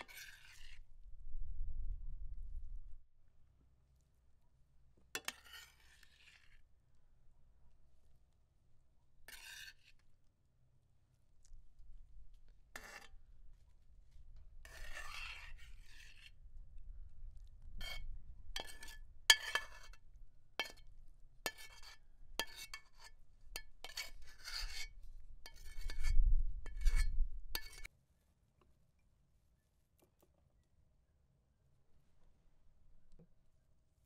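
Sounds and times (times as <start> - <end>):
utensil scraping and clinking cookware: 18.6 - 20.0, 20.6 - 20.8, 21.5 - 27.9.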